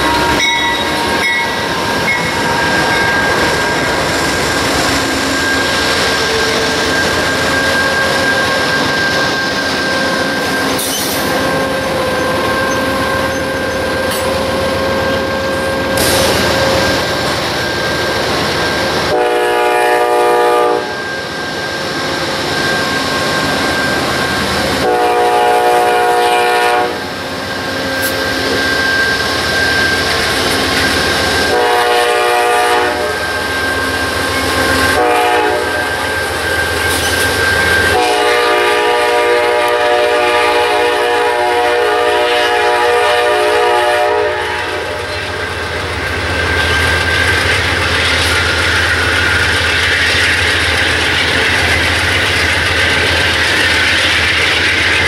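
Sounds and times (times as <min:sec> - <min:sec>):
train wheels on rails: 0:00.0 - 0:55.0
locomotive horn blasts: 0:19.1 - 0:21.0, 0:24.8 - 0:27.1, 0:31.4 - 0:33.3, 0:34.9 - 0:35.9, 0:37.9 - 0:45.1.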